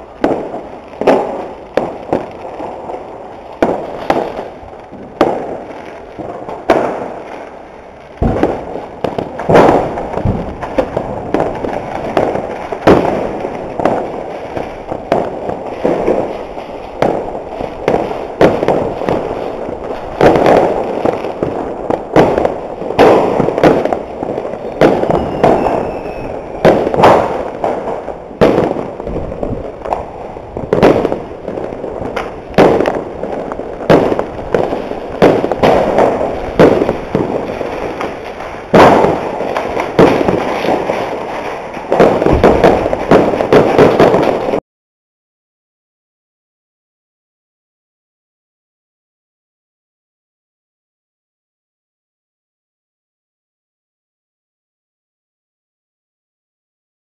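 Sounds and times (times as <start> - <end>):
fireworks and firecrackers banging: 0.0 - 44.6.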